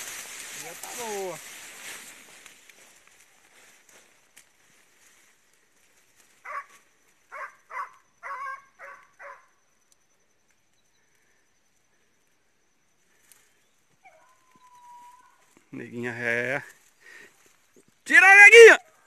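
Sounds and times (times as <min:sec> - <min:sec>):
dog barking: 0:06.4 - 0:09.5.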